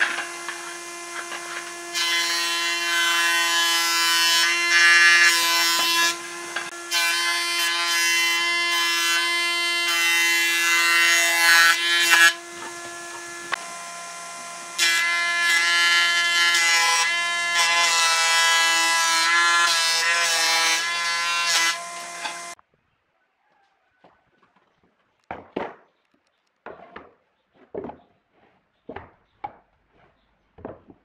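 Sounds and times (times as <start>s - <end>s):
planer cutting boards: 0.0s - 22.6s
planer cutterhead whine: 10.7s - 15.7s.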